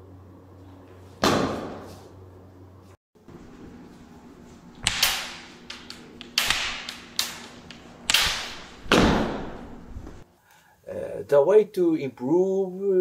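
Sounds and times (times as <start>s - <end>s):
wooden swords clacking: 4.8s - 10.2s.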